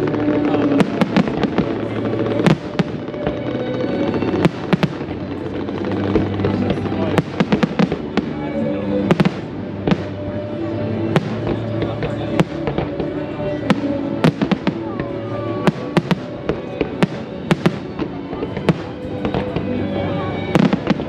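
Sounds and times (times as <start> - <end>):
music playing: 0.0 - 21.0.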